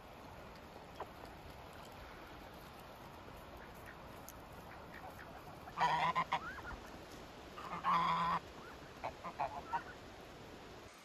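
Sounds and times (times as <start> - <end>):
geese honking: 4.6 - 6.8, 7.6 - 10.0.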